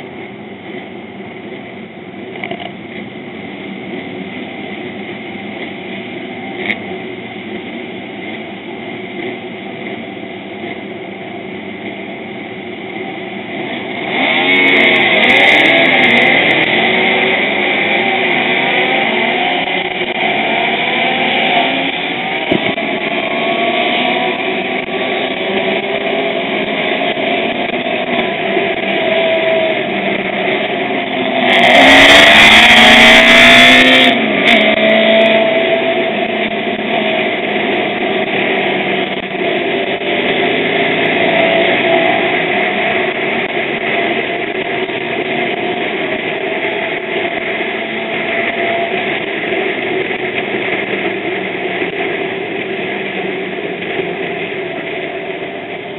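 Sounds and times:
motorcycle engines accelerating: 0.0 - 55.9
wind rush on microphone: 22.3 - 22.9.

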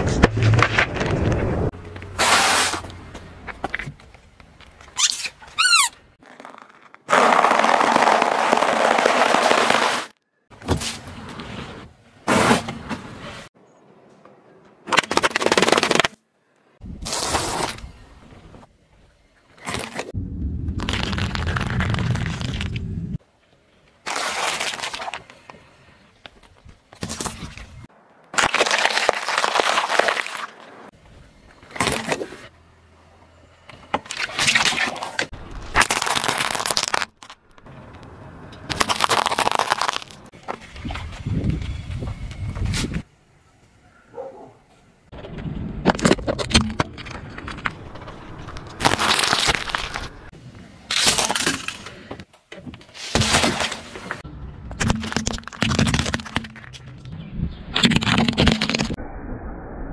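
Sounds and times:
car tyre crunching small objects: 1.8 - 10.2, 19.6 - 22.9, 23.9 - 27.7, 28.3 - 30.9, 33.7 - 40.8, 45.8 - 52.0, 52.9 - 57.1, 57.7 - 59.0
corn cob crushed under tyre: 6.2 - 10.1, 28.3 - 30.6, 35.5 - 37.4, 38.7 - 40.3, 47.9 - 50.3
tyre crushing things on asphalt: 6.2 - 10.9, 47.7 - 50.3.

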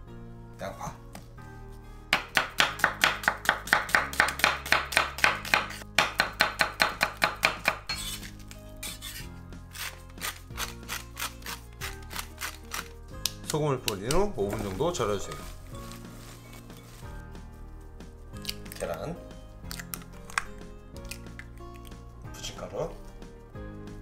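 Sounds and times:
soft background music: 0.0 - 24.0
knife slicing onion on cutting board: 2.1 - 12.8.

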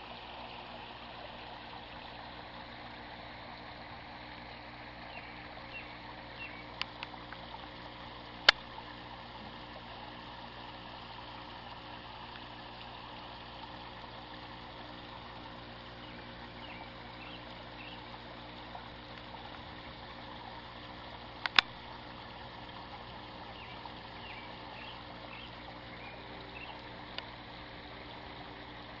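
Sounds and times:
water trickling and splashing: 0.0 - 29.0
sharp clicks: 21.4 - 21.7.

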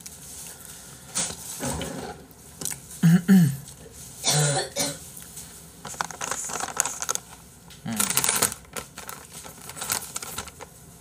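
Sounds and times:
man clearing his throat: 3.0 - 3.6
man coughing: 3.0 - 3.6, 4.2 - 5.0.

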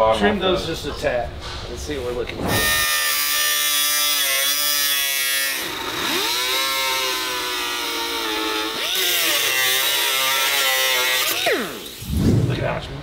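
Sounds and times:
angle grinder cutting metal: 2.4 - 12.1.

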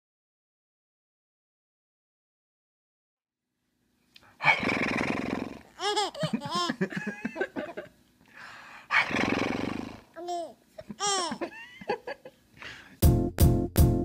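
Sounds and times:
baby squealing and cooing: 5.5 - 6.8, 10.2 - 11.6
baby laughing: 5.7 - 7.9, 10.2 - 12.3
music with a steady beat: 13.0 - 14.0.

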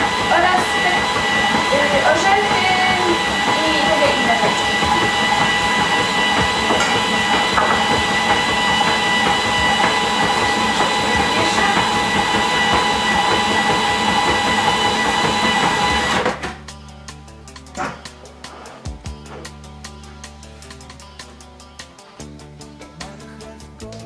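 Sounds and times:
food processor motor running: 0.0 - 16.6
steady high whine: 0.0 - 18.4.

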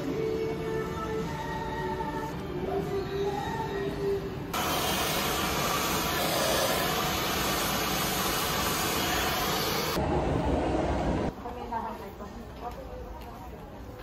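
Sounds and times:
faint background music: 0.0 - 4.6, 11.3 - 14.0.

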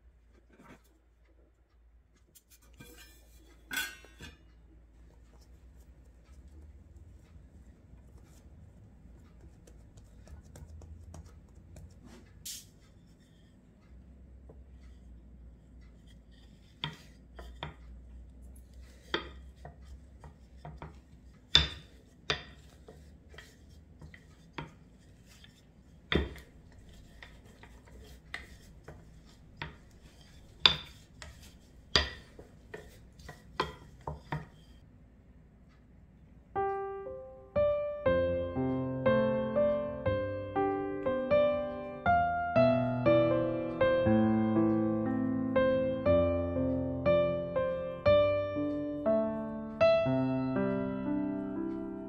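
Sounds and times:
hands handling dough: 2.2 - 13.9, 15.7 - 34.9
rolling pin knocking on dough: 16.6 - 18.0, 18.8 - 34.8.

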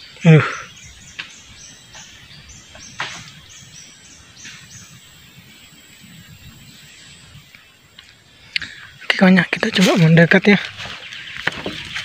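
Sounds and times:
steady high buzz: 0.0 - 12.0.

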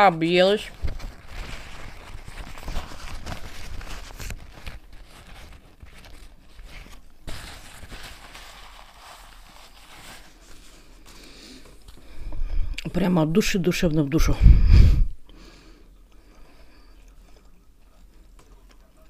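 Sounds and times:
paper napkin rustling: 0.0 - 12.2.

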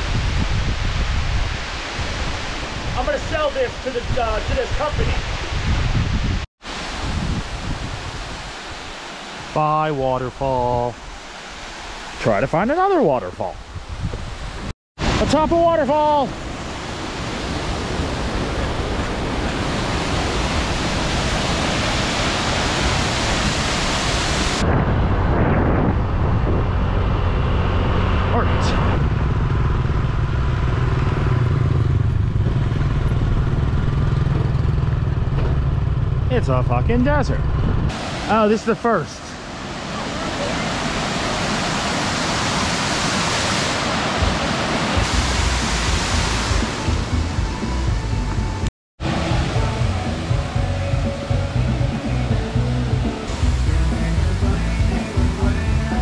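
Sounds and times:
wind noise: 0.0 - 9.2, 13.5 - 38.3
waterfall rushing over rock: 15.0 - 24.6, 37.9 - 47.4, 52.0 - 56.0
motorbike engine riding: 26.6 - 37.8.

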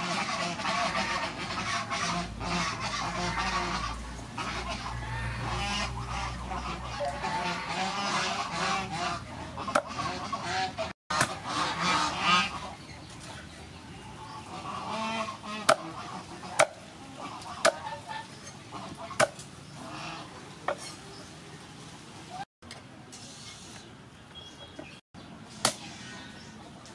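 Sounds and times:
bird calls: 11.4 - 21.4, 23.7 - 26.9
cleaver chopping on wooden board: 15.7 - 15.9, 16.6 - 16.8, 19.2 - 19.4.

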